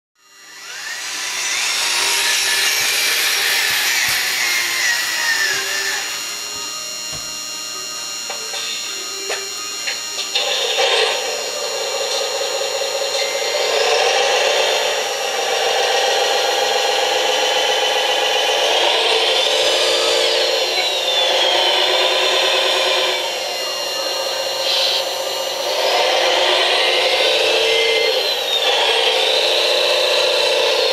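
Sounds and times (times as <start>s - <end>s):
toy truck motor whining: 0.2s - 30.9s.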